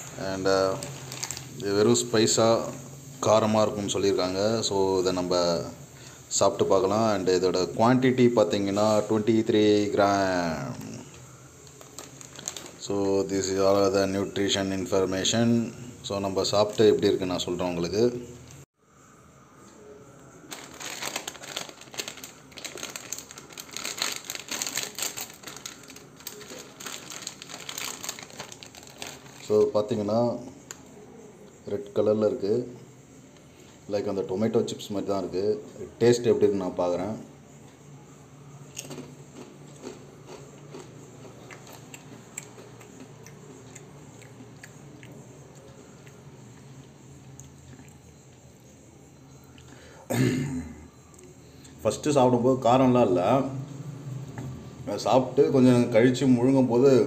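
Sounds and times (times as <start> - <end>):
chip packet crinkling: 0.0 - 2.1, 10.7 - 13.8, 20.5 - 30.0
person chewing crunchy chips: 11.6 - 12.8, 20.5 - 29.5, 38.7 - 48.1.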